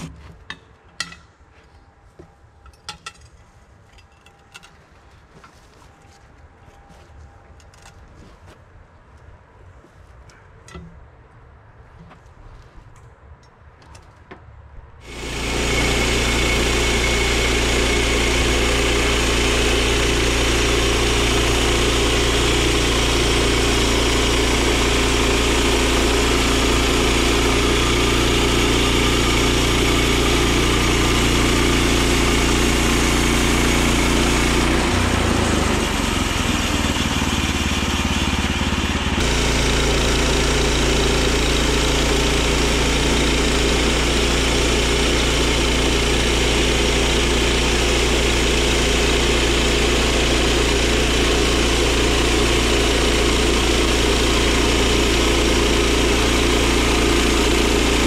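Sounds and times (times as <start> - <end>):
bandsaw mill cutting log: 0.0 - 0.4, 15.0 - 58.0
gasoline engine running: 15.0 - 58.0.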